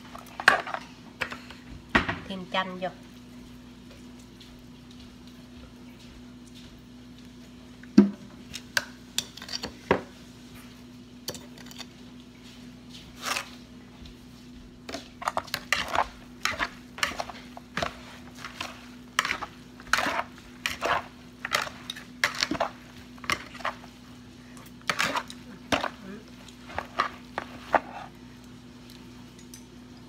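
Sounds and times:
utensils clinking and scraping bowl: 8.6 - 10.1, 11.2 - 12.1, 13.0 - 13.6, 14.9 - 28.2.

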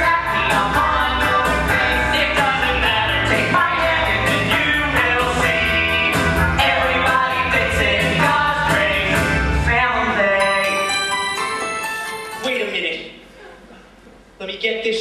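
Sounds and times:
pop-rock band with drum beat: 0.0 - 9.6
person singing: 0.0 - 11.7.

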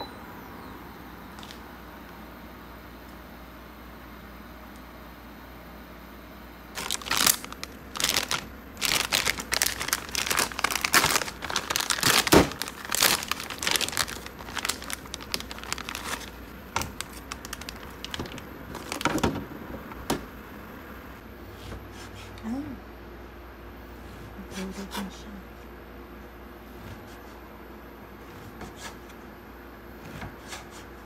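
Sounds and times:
crinkling crumpled by hand: 6.8 - 20.4.

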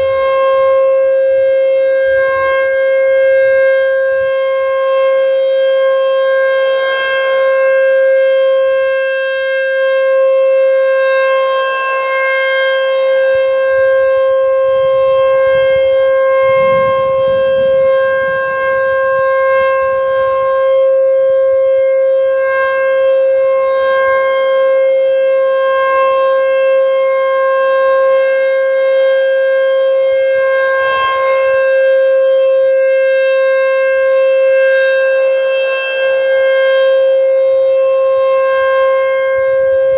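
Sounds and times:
warning siren steady tone: 0.0 - 39.9.

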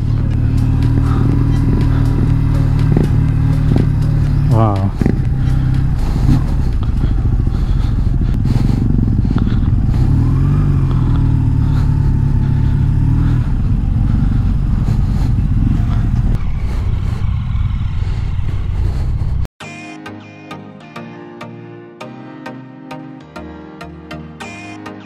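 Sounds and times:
motorcycle engine running: 0.0 - 19.5.

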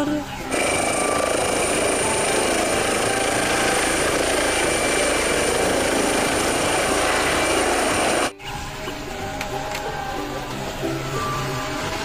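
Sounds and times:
helicopter rotor with high whine: 0.5 - 8.3.

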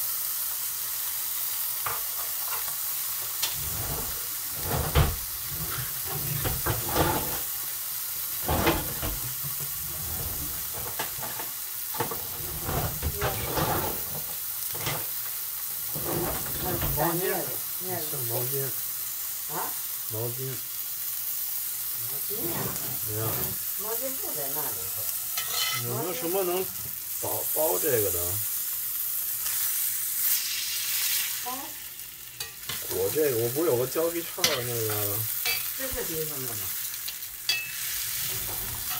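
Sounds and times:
steak sizzling in skillet: 0.0 - 38.9
fat crackling and popping: 12.0 - 14.4.

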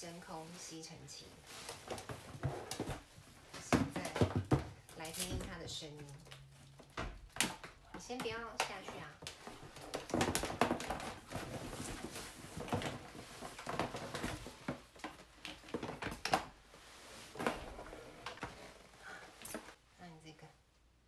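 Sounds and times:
power cord rustling on cardboard: 8.8 - 16.1.

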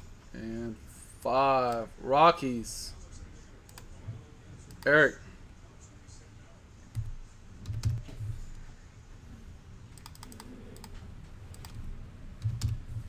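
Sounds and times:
computer keyboard typing: 6.9 - 8.2, 10.0 - 13.0.

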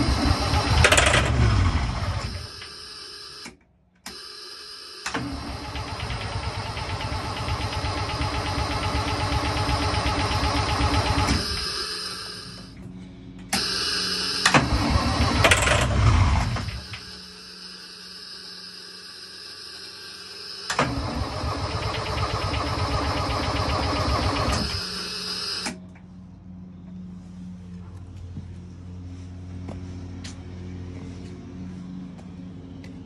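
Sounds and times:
diesel engine cranking on starter: 0.0 - 12.8, 13.4 - 25.8
engine firing bursts: 0.0 - 12.8, 13.4 - 25.8.

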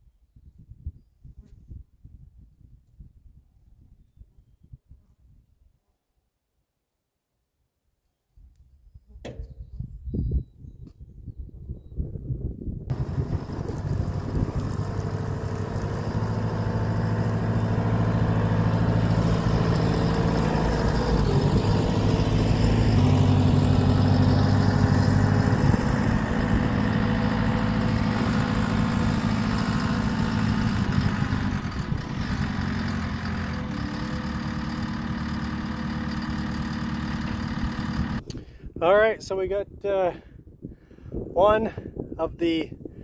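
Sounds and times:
diesel engine running: 12.9 - 38.4.

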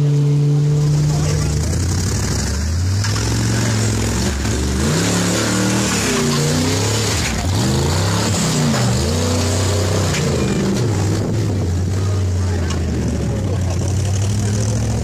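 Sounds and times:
engine revving up and down: 0.0 - 15.0.

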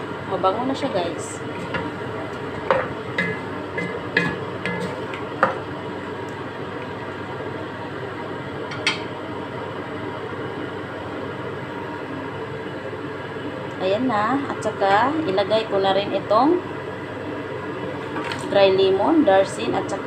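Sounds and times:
spatula knocking against pot: 2.6 - 5.6.

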